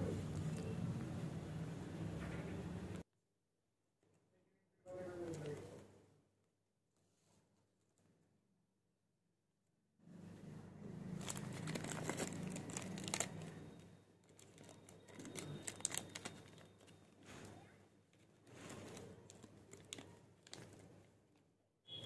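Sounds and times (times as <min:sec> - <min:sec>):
packaging crinkling and tearing: 0:11.0 - 0:17.2, 0:18.1 - 0:20.8.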